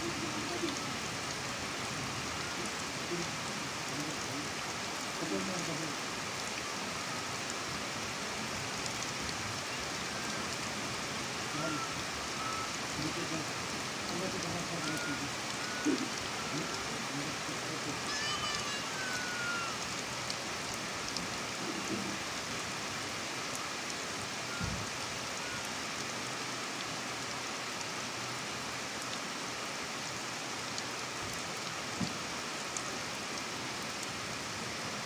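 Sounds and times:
heavy rain: 0:00.0 - 0:35.0
water streaming off roof: 0:00.0 - 0:35.0
water drips ticking: 0:08.7 - 0:11.2, 0:11.8 - 0:18.9, 0:19.7 - 0:26.1.

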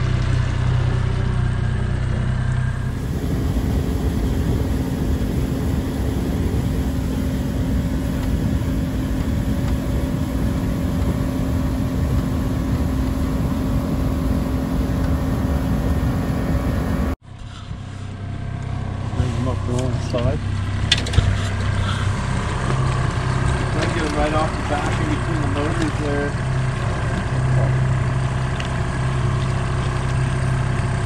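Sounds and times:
boat motor droning: 0:00.0 - 0:17.2, 0:17.8 - 0:31.0
wind and water rushing: 0:02.9 - 0:17.2.

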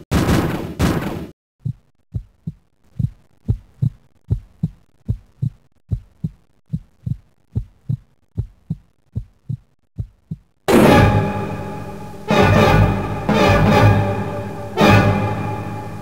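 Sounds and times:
heartbeat thumps: 0:01.6 - 0:10.7.

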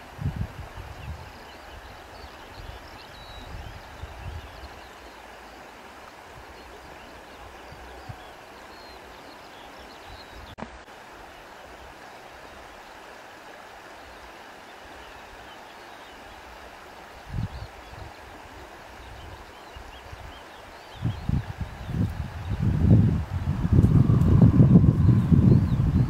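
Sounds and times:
wind rumble on microphone: 0:00.0 - 0:04.8, 0:17.2 - 0:26.0
river water flowing: 0:00.0 - 0:26.0.

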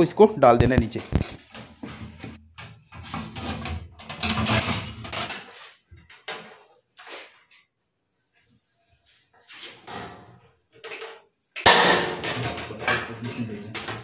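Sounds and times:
metal scraping and clanking: 0:00.8 - 0:05.8.

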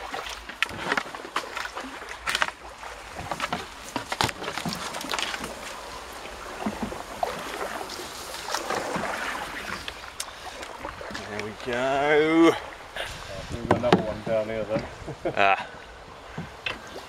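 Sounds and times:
leaves and twigs rustling: 0:00.0 - 0:12.0
paddle splashing in water: 0:00.0 - 0:17.0.

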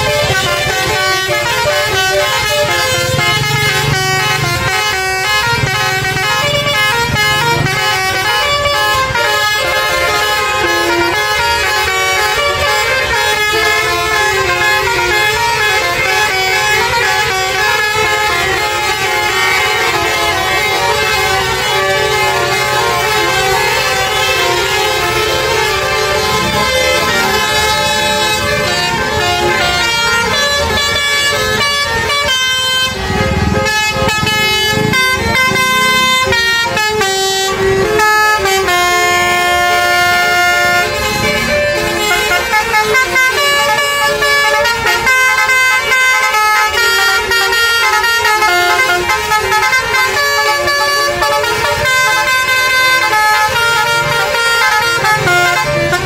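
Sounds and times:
crowd voices: 0:00.0 - 0:38.6
multi-tone musical bus horns: 0:00.0 - 0:56.0.

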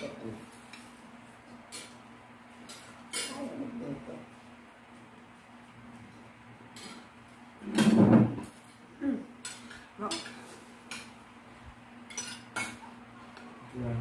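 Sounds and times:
cutlery clinking on a plate: 0:06.7 - 0:07.1, 0:07.7 - 0:08.7, 0:12.1 - 0:12.9.

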